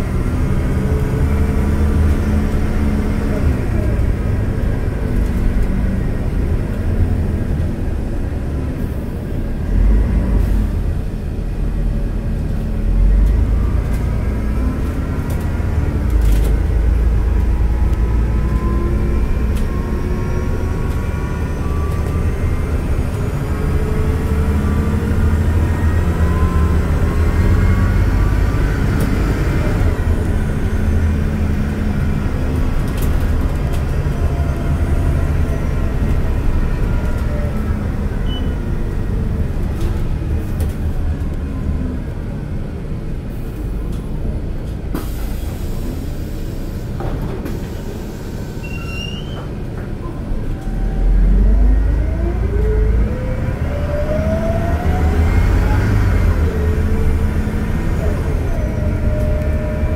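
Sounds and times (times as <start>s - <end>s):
bus engine drone: 0.0s - 59.9s
rising and falling whine: 50.6s - 59.9s.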